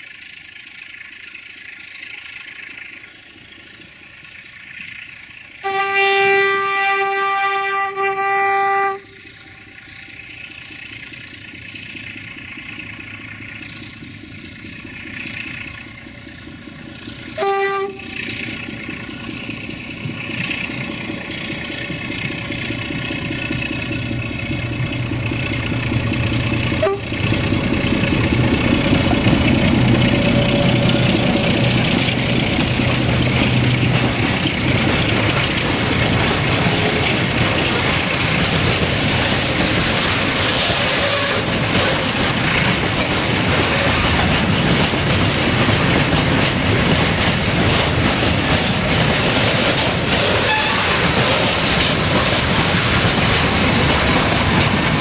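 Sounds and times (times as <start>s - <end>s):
train engine approaching: 0.0s - 55.0s
train horn blasts: 5.6s - 9.7s, 17.4s - 18.3s, 26.8s - 27.2s, 40.7s - 41.5s, 50.4s - 51.0s.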